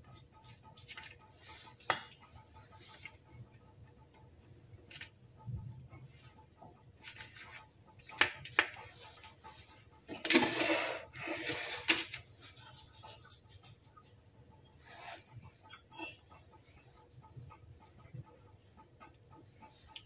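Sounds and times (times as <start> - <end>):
baking tray rustling scrape: 10.1 - 12.6, 14.8 - 16.2
spoons clinking on metal bowl: 15.7 - 16.2.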